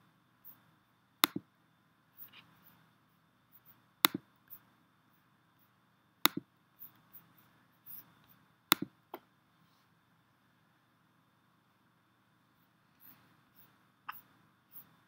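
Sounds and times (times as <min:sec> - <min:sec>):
mouse button clicking: 0:01.2 - 0:01.4, 0:08.7 - 0:08.9
faint ticks and handling noise: 0:02.1 - 0:10.0, 0:12.5 - 0:15.0.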